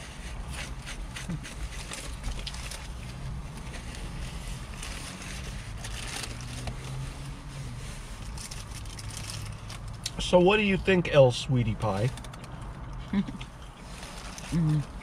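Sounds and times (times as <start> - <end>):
paper wrapper crinkling: 0.7 - 7.1, 8.1 - 9.8.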